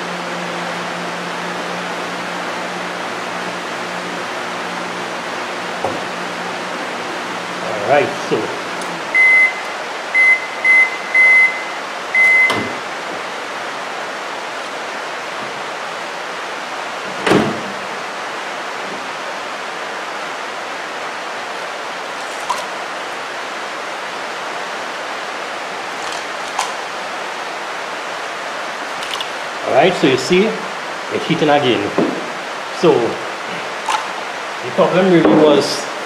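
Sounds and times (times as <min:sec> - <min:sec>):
microwave beeping: 0:09.1 - 0:12.9
rain hissing: 0:17.7 - 0:36.0.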